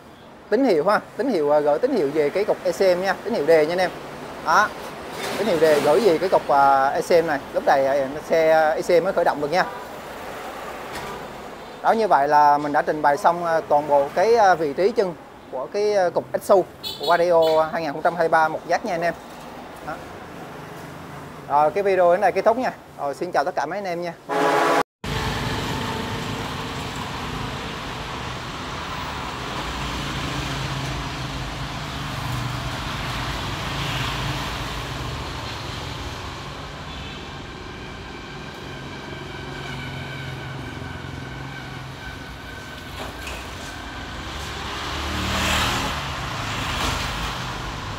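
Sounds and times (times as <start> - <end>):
motor vehicle noise: 0.0 - 21.8, 24.4 - 47.9
vehicle passing close by: 25.1 - 41.9, 43.9 - 47.9.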